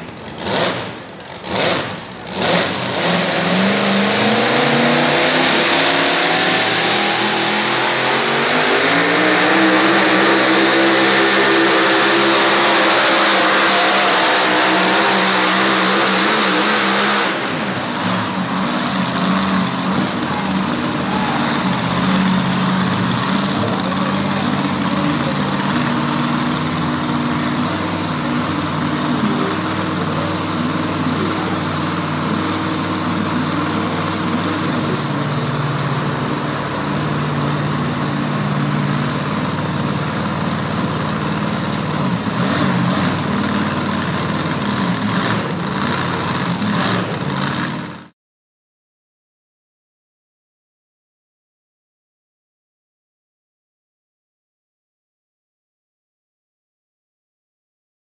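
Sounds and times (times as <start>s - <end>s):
truck engine running hard: 0.0s - 48.1s.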